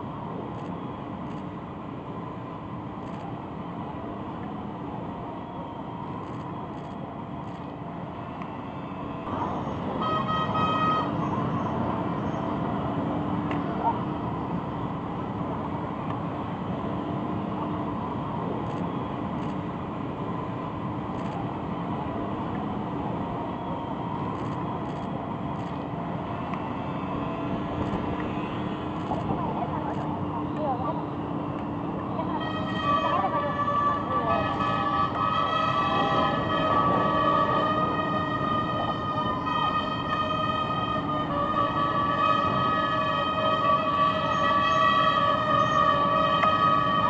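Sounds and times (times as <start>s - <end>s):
motorcycle engines: 0.0s - 47.0s
vehicle horn honking: 9.9s - 11.7s, 32.2s - 46.8s.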